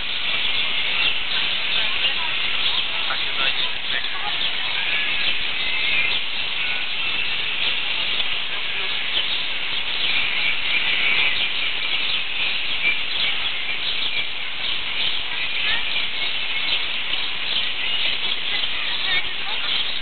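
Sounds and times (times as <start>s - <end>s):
small birds twittering: 0.0s - 20.0s
steady hiss: 0.0s - 20.0s.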